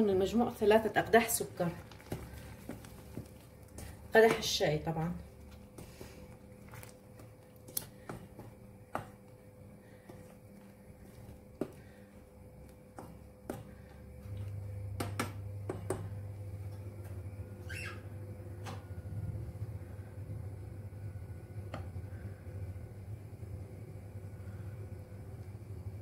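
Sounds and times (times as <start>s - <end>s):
low steady hum: 0.0s - 26.0s
spoon stirring in a saucepan: 1.2s - 4.5s.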